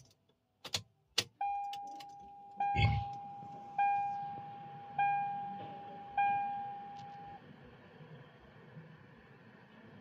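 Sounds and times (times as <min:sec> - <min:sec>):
car warning chime dinging: 0:01.2 - 0:07.4.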